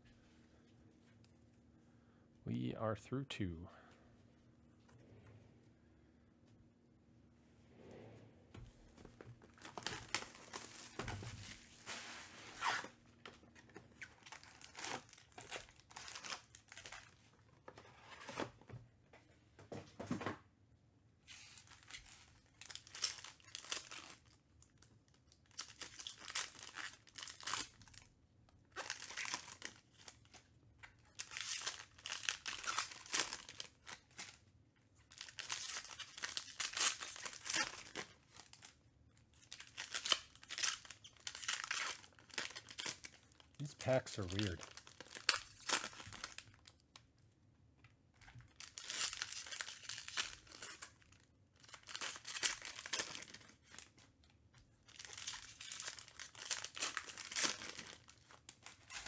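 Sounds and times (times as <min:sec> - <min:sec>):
foil wrappers tearing and crinkling: 0:09.6 - 0:13.0, 0:13.6 - 0:17.2, 0:21.3 - 0:28.1, 0:28.7 - 0:30.4, 0:31.1 - 0:34.4, 0:35.1 - 0:46.8, 0:48.5 - 0:54.1, 0:54.8 - 0:59.0.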